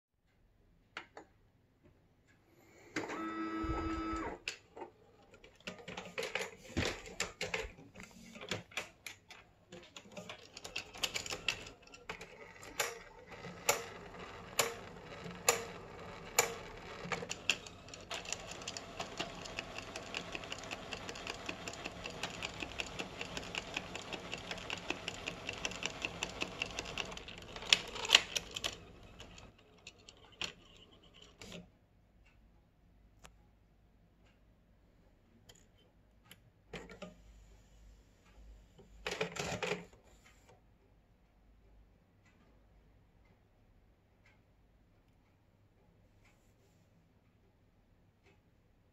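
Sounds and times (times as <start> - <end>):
printer motor whine: 3.0 - 4.6, 10.2 - 29.6
printer clicks: 9.8 - 31.6
fast mechanical ticking: 9.9 - 31.6.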